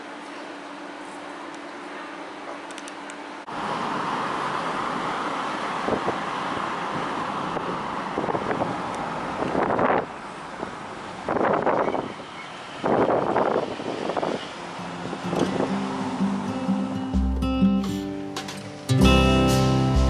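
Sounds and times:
car road and wind noise: 3.5 - 18.9.

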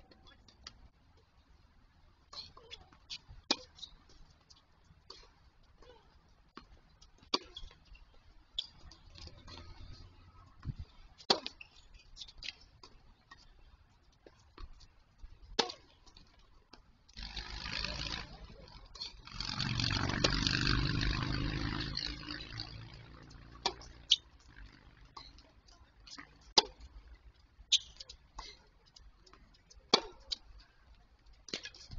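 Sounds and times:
tennis balls struck by rackets: 2.3 - 4.0, 5.0 - 7.8, 8.6 - 13.4, 15.5 - 16.1, 16.7 - 27.1, 29.8 - 30.6.

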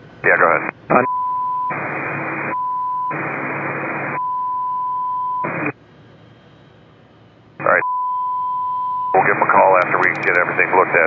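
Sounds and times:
radio hiss: 0.2 - 1.1, 9.1 - 11.0
censor beep tone: 1.0 - 1.8, 2.5 - 3.2, 4.2 - 5.5, 7.8 - 9.2.

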